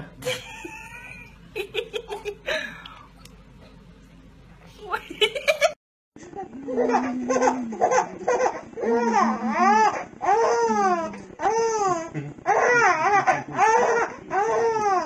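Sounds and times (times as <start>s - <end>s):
infant crying: 6.8s - 15.0s.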